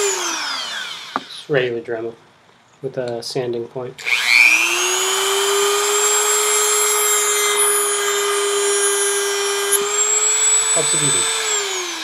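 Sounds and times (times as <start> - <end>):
rotary tool high whine: 0.0 - 1.5, 4.0 - 12.0.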